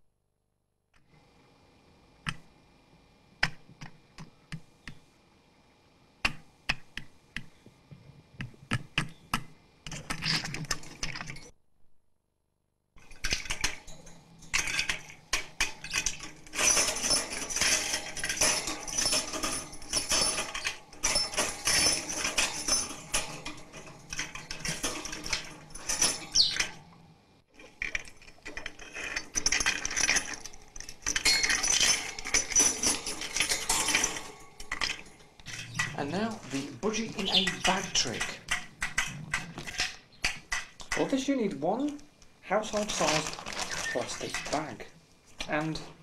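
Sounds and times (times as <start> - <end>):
bird rattling cage toys: 9.9 - 11.5, 13.0 - 26.9, 27.5 - 41.9, 42.5 - 44.8.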